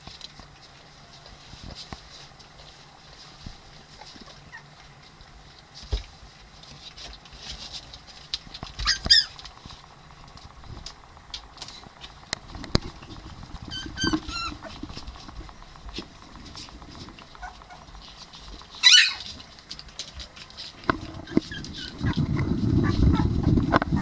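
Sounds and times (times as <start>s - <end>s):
paws scratching on floor: 0.0s - 24.0s
puppies squeaking: 4.4s - 4.7s, 8.7s - 9.5s, 13.6s - 15.2s, 17.3s - 18.0s, 18.7s - 19.4s, 21.1s - 23.3s
low rustling rumble: 9.4s - 24.0s.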